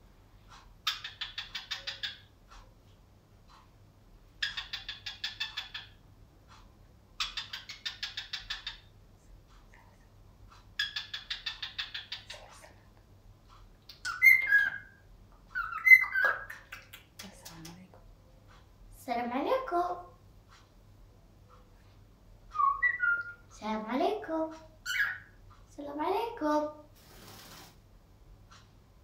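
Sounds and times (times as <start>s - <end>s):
cockatiel chattering: 0.8s - 2.3s, 4.4s - 6.0s, 7.2s - 8.9s, 10.7s - 12.7s, 13.9s - 17.6s, 22.6s - 23.5s, 24.8s - 25.4s
cockatiel whistling: 14.0s - 14.9s, 15.6s - 16.6s, 22.6s - 23.4s.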